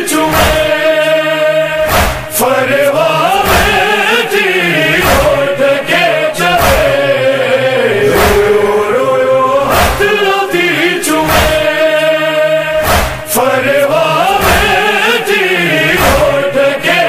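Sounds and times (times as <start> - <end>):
backing chorus: 0.0 - 17.0
man chanting a lament: 0.0 - 17.0
sharp strikes: 1.8 - 2.4, 8.1 - 8.7, 9.7 - 10.2, 11.2 - 11.8, 12.8 - 13.4.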